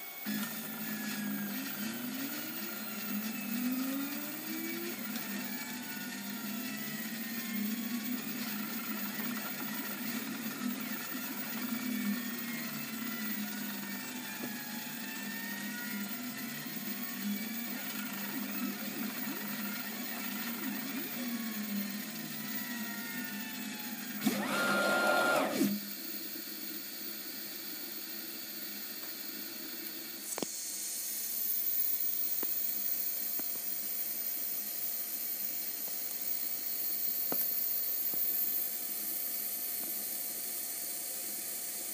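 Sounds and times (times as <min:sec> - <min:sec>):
stepper motors whining: 0:00.0 - 0:26.8
louder steady whir: 0:00.0 - 0:32.6.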